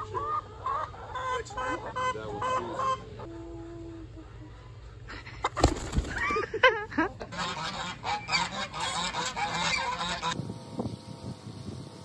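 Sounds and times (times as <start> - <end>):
geese honking: 0.0 - 3.3, 7.3 - 10.4.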